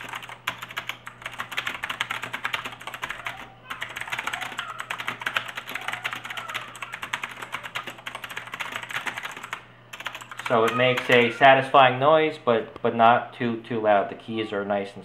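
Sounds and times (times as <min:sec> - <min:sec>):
mechanical keyboard typing: 0:00.0 - 0:11.3.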